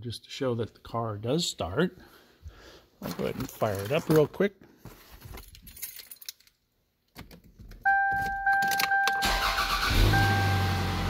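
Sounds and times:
keys rattling in ignition: 5.4 - 6.6, 7.2 - 9.9
electronic warning chime: 7.9 - 11.0
car engine cranking and idling: 9.0 - 11.0.

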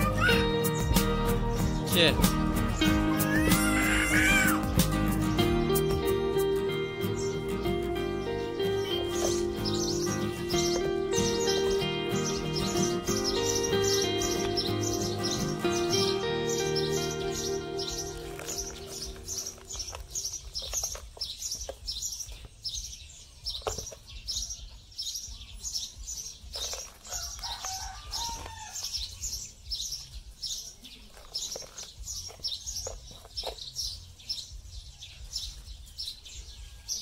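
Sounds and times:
bird chirping: 0.0 - 37.0
hands working soil in bucket: 17.0 - 22.6, 26.5 - 29.0, 30.8 - 33.8.

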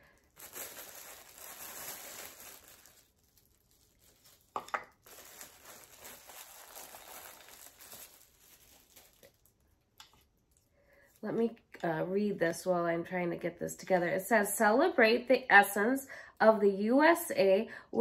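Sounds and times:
packaging crinkling: 0.0 - 11.3.

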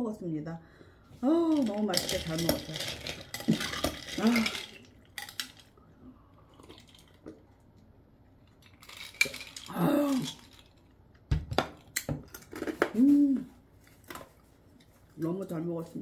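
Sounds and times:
person humming a sigh: 9.7 - 10.4, 13.0 - 13.6.

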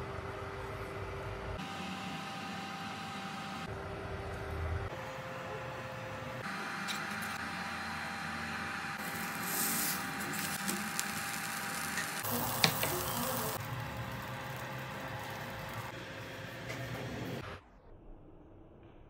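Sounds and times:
tortilla sizzling in frying pan: 9.0 - 15.9.

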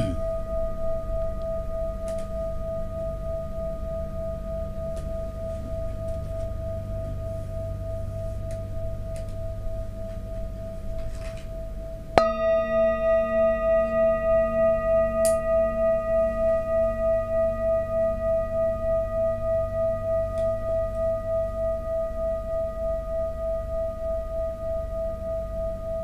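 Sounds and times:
metal singing bowl ringing: 0.0 - 26.0
wooden mallet striking bowl: 12.2 - 18.4.

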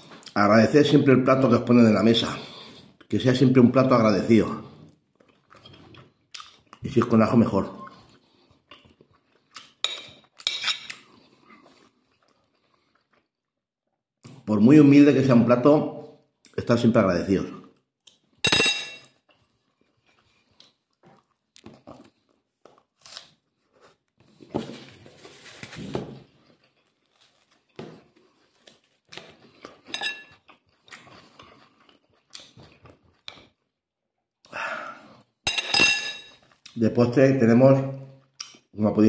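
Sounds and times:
chewing and crunching: 4.7 - 7.1, 7.8 - 14.4, 19.1 - 24.4, 26.2 - 33.8
crackling rustle of bread: 24.8 - 29.6.

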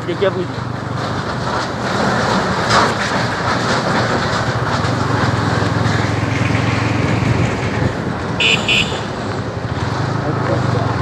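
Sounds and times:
steady rushing noise: 0.2 - 11.0
motorcycle engine running: 2.3 - 11.0.

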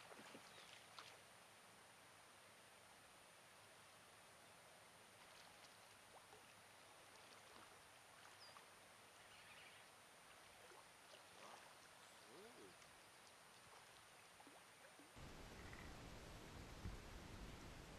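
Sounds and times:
steady hiss: 15.2 - 17.9.

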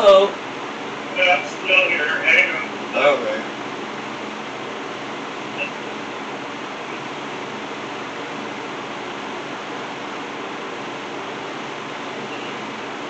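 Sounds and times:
faint low hum: 0.0 - 10.2.

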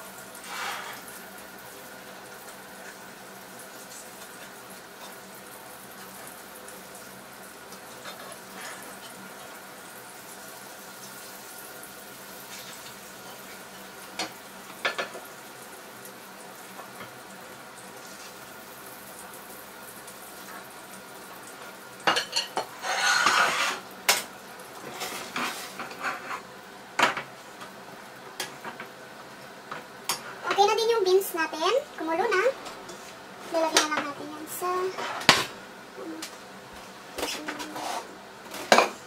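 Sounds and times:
bacon fat sizzling: 0.0 - 39.0
spatula scraping frying pan: 0.4 - 1.1, 7.9 - 9.2, 22.1 - 24.2, 24.8 - 26.5, 34.8 - 35.4, 37.2 - 38.9.

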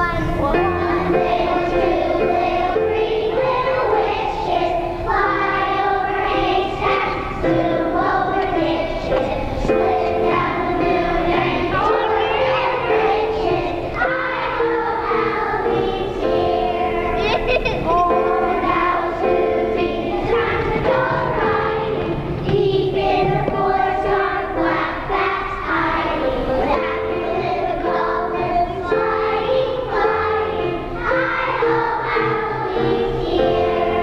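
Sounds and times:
children singing in chorus: 0.0 - 34.0.

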